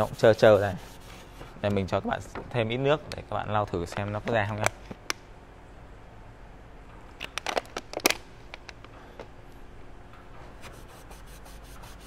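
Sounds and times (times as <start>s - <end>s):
cloth rag rubbing on wood: 0.0s - 1.5s, 10.6s - 12.0s.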